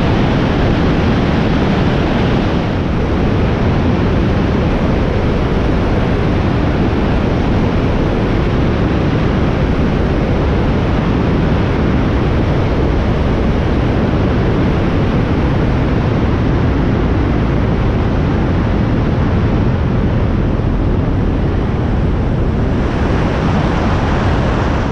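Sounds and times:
light aircraft engine and airflow: 0.0 - 24.9.

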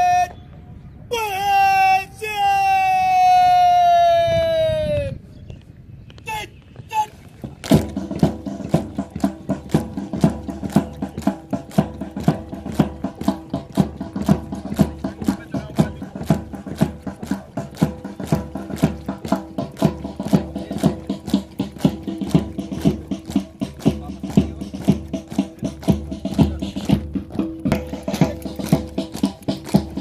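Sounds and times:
music with fast percussive beat: 7.4 - 30.0.

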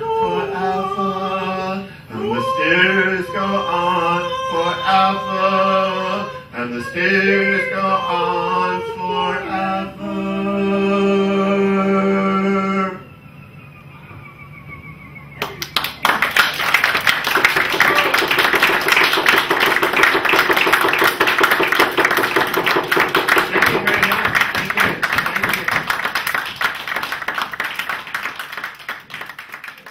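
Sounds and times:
audience applause: 15.4 - 29.9.

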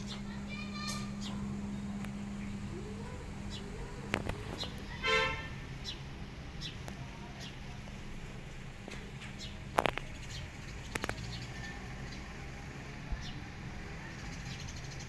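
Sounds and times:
sharp clicks: 8.9 - 11.5.

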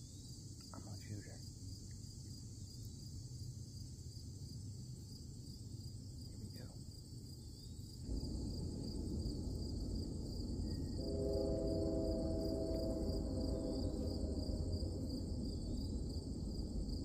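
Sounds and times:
insects buzzing: 0.0 - 17.0
low rumble: 7.8 - 17.0.

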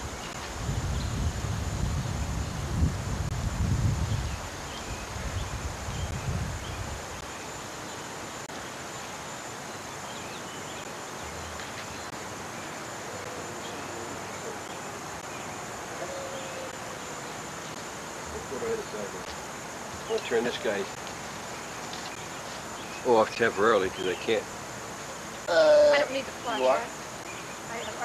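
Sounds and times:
low microphone rumble: 0.0 - 4.4
faint outdoor background: 0.0 - 28.0
tape hiss: 0.0 - 28.0.

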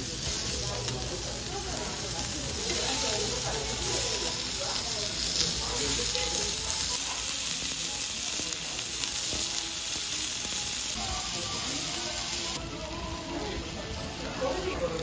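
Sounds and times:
faint music: 0.0 - 15.0
pork sizzling on a griddle: 0.0 - 15.0.

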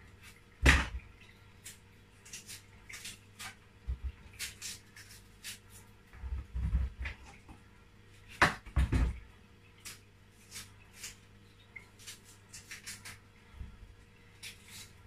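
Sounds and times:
knife scraping and tearing peel: 1.6 - 3.6, 4.3 - 5.9, 9.8 - 13.3, 14.3 - 15.0.

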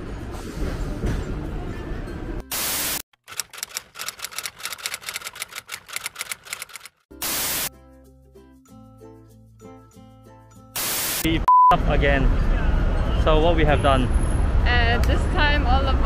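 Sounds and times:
tram rumbling: 0.0 - 2.4
music: 0.0 - 2.5, 7.1 - 10.9
typewriter clicking: 3.2 - 7.0
tv static bursts: 10.8 - 11.3.

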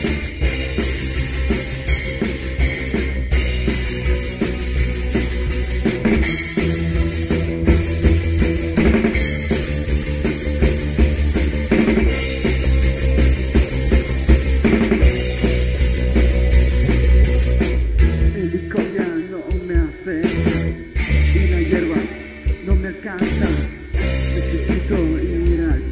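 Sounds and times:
drum kit kick and snare: 0.0 - 25.9
punk rock band playing: 0.0 - 25.9.

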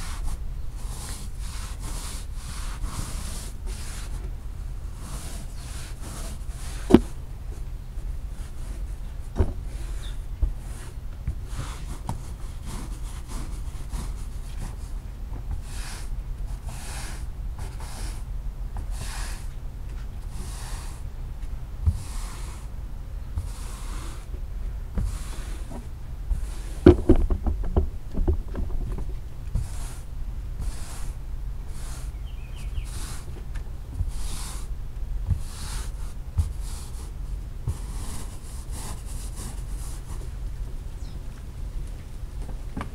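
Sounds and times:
broom scrubbing wet rug: 0.0 - 4.2, 4.8 - 7.2, 9.7 - 19.5, 20.2 - 21.0, 21.8 - 22.7, 23.4 - 24.3, 25.0 - 27.3, 29.5 - 33.4, 34.0 - 34.7, 35.3 - 40.4
sharp knocks: 26.8 - 29.1.

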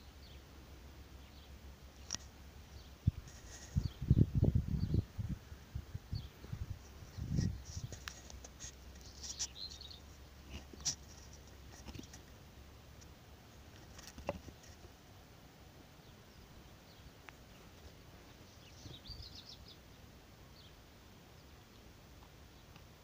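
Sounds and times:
faint bird chirps: 1.1 - 5.1, 8.9 - 11.0, 16.0 - 22.8.

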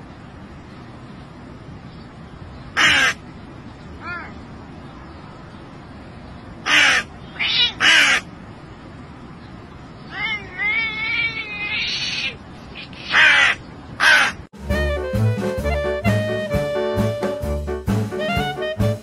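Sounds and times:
crow cawing: 2.8 - 3.2, 6.6 - 8.3, 13.1 - 14.4
cat meowing: 4.0 - 4.4, 7.2 - 8.3, 10.0 - 13.6.

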